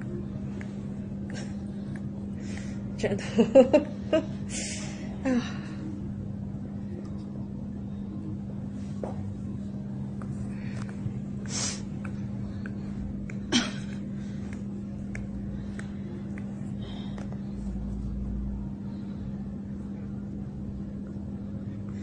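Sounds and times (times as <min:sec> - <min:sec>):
steady low hum: 0:00.0 - 0:22.0
person breathing sharply: 0:04.5 - 0:05.9.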